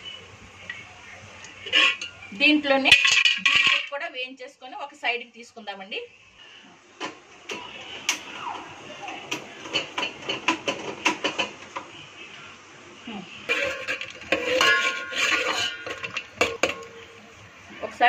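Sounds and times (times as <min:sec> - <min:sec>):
spoon clinking and scraping a pot: 0:01.6 - 0:02.3, 0:02.9 - 0:03.8, 0:13.5 - 0:17.2.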